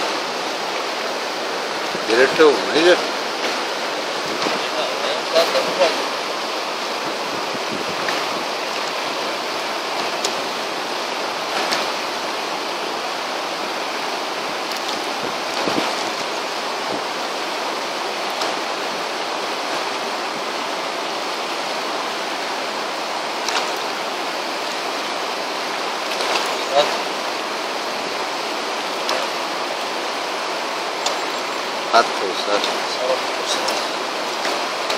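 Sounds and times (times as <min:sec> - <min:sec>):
stream rushing over rocks: 0:00.0 - 0:34.9.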